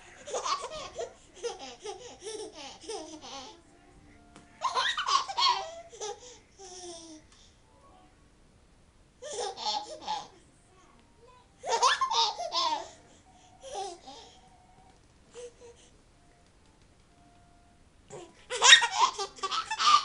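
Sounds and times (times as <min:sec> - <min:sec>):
baby laughing: 0:00.1 - 0:03.6, 0:04.6 - 0:07.2, 0:09.2 - 0:10.4, 0:11.6 - 0:13.0, 0:13.6 - 0:14.4, 0:18.1 - 0:20.0.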